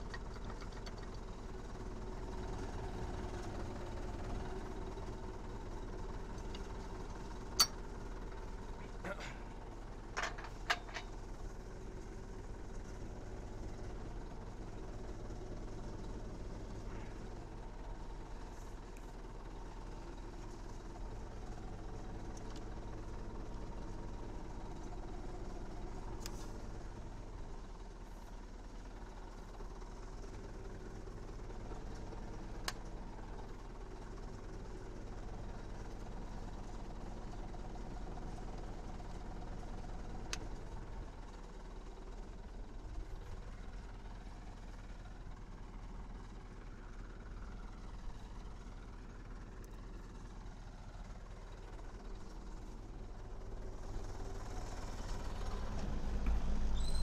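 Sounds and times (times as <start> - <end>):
tractor diesel engine idling: 0.0 - 57.0.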